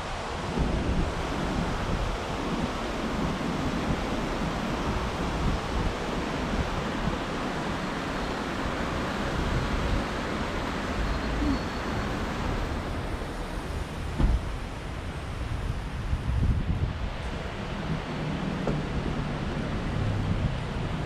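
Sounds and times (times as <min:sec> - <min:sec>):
wind buffeting microphone: 0:00.0 - 0:11.1, 0:11.8 - 0:21.0
traffic: 0:00.0 - 0:21.0
brief thump: 0:14.2 - 0:14.5.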